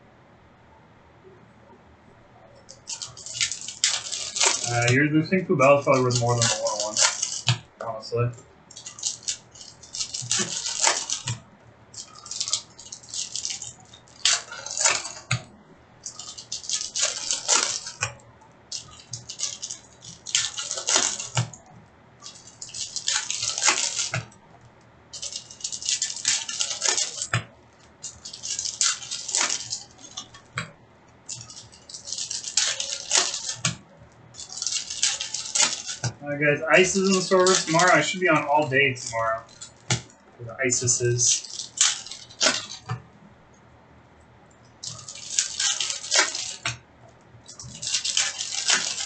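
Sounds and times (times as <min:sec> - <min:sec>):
card packs tearing and crinkling: 0:02.8 - 0:07.5, 0:08.8 - 0:11.4, 0:12.0 - 0:15.4, 0:16.1 - 0:18.1, 0:18.8 - 0:21.6, 0:22.3 - 0:24.3, 0:25.2 - 0:27.4, 0:28.0 - 0:30.4, 0:31.3 - 0:33.8, 0:34.4 - 0:40.0, 0:40.6 - 0:43.0, 0:44.8 - 0:46.8, 0:47.5 - 0:49.0.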